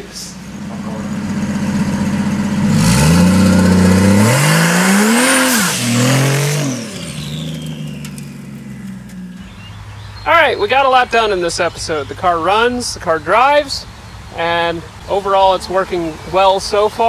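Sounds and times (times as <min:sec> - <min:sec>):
engine accelerating: 0:00.0 - 0:10.2.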